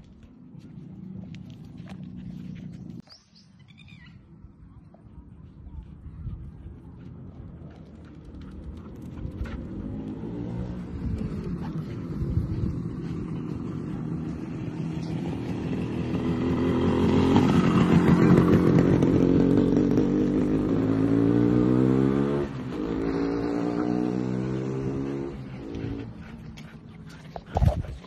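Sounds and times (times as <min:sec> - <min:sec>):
vehicle engine accelerating: 0:07.0 - 0:28.0.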